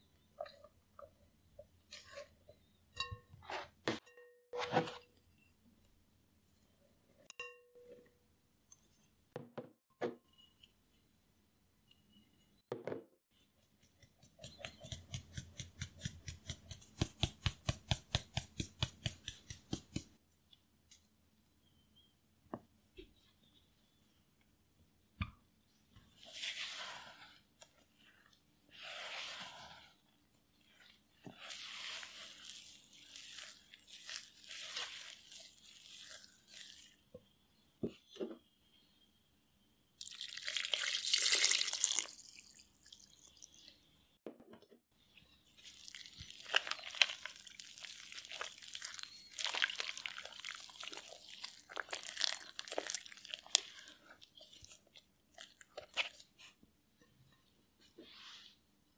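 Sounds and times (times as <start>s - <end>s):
spatula stirring batter in bowl: 13.4s - 20.2s, 26.0s - 37.1s, 45.5s - 57.4s.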